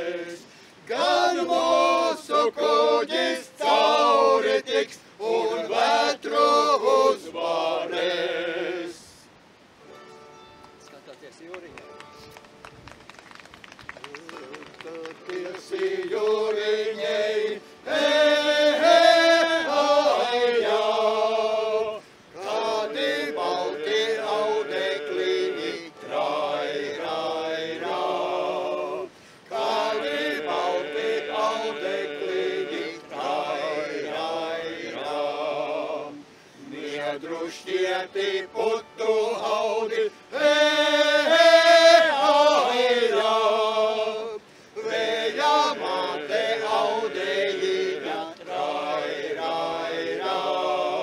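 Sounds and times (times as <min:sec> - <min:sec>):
men singing over a drone: 0:00.0 - 0:09.3, 0:14.9 - 0:51.0.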